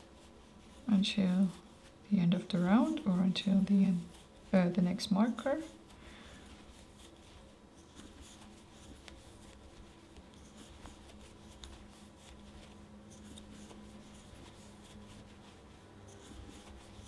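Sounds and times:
crochet hook rubbing through yarn: 0.0 - 17.0.

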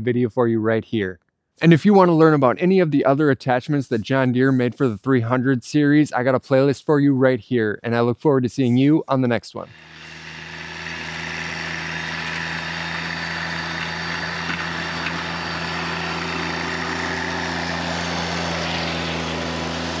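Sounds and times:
garden tractor engine running: 9.7 - 20.0.

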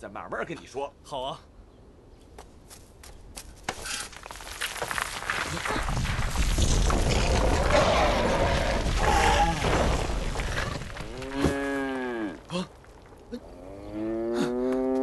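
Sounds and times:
ox mooing: 11.2 - 12.6, 13.3 - 15.0.

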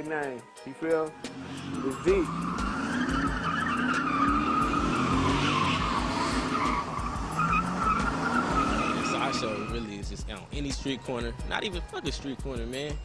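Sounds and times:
engine revving high: 1.3 - 9.8
car tyres squealing: 1.3 - 10.0.

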